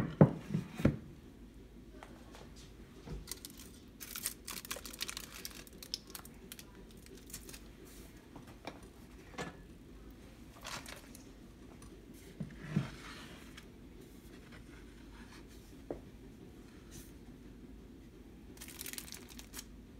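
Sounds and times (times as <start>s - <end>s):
aluminium foil crinkling: 3.2s - 7.7s, 18.6s - 19.7s.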